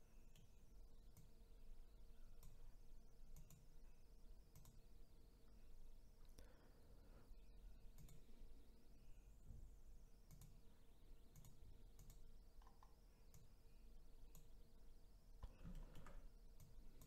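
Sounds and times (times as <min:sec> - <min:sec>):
faint steady hum: 0:00.0 - 0:17.0
computer mouse clicks: 0:00.3 - 0:00.5, 0:01.1 - 0:01.3, 0:02.4 - 0:02.6, 0:03.3 - 0:03.7, 0:04.5 - 0:04.8, 0:07.9 - 0:08.3, 0:10.3 - 0:10.6, 0:11.3 - 0:13.6, 0:14.3 - 0:14.6, 0:15.4 - 0:17.0.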